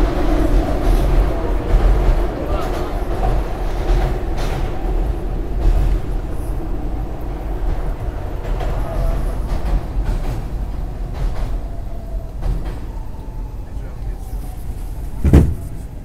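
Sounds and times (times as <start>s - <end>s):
sharp clicks of train: 0.0s - 6.6s, 7.2s - 13.3s
subway car rumbling in tunnel: 0.0s - 16.0s.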